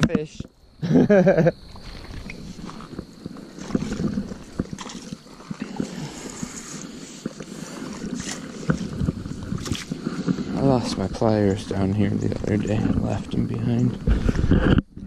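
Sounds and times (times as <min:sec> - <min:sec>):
river water splashing on gravel: 0:01.7 - 0:13.4
footsteps on wet gravel: 0:01.7 - 0:13.7.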